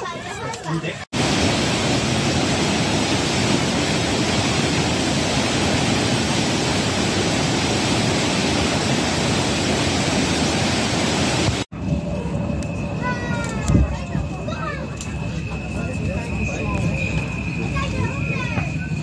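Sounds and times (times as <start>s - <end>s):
white-water torrent rushing: 1.2s - 11.7s.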